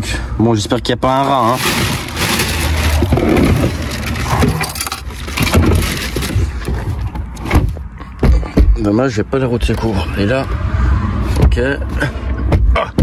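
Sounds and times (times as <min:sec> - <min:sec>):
plastic bags crinkling: 0:01.1 - 0:07.0.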